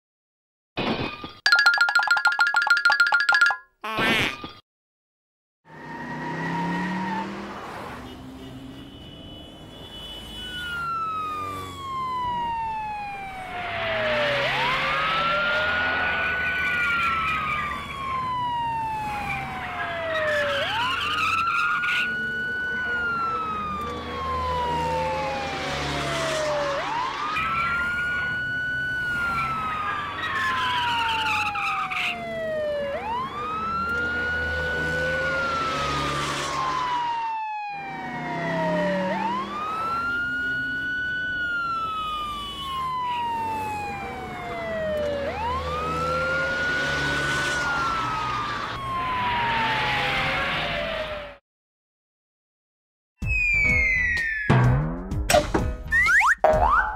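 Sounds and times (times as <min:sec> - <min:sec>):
police car siren wailing: 0:05.7 - 0:07.5, 0:10.5 - 0:51.4, 0:53.3 - 0:54.6.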